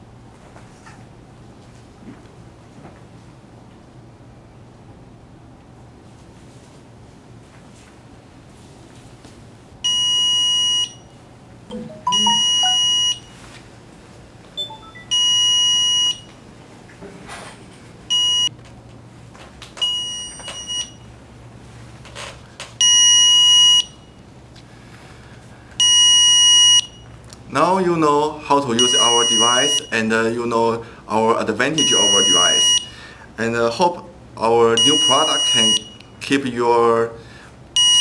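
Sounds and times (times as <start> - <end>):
alarm buzzer beeping: 11.7 - 13.3, 14.6 - 16.2, 28.8 - 29.9, 31.8 - 32.9, 34.8 - 36.0, 37.8 - 38.0.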